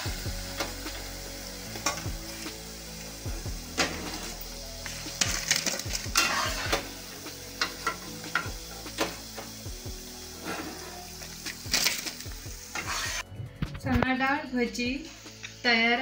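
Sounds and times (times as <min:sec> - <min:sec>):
fritters sizzling in oil: 0:00.0 - 0:13.3
spatula scraping pan: 0:06.2 - 0:06.8, 0:10.4 - 0:11.1, 0:12.7 - 0:13.3.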